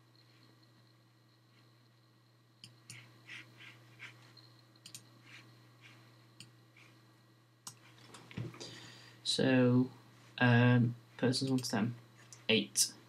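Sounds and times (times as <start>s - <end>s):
low steady hum: 0.0s - 13.0s
computer mouse clicks: 2.6s - 3.1s, 4.8s - 5.1s, 7.6s - 8.2s.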